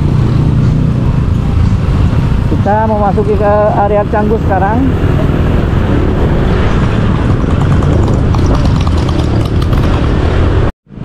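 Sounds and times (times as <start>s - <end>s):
motorbike engine rumble: 0.0s - 11.0s
road noise: 0.0s - 11.0s.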